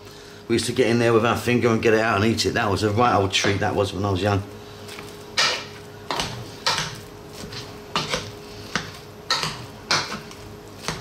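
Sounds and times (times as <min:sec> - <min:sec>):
potato masher clacking against pot: 0:09.3 - 0:10.3.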